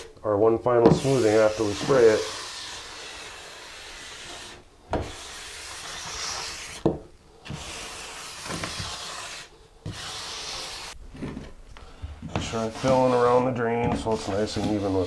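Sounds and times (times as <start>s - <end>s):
float scraping over mortar: 0.9s - 6.8s, 12.2s - 15.0s.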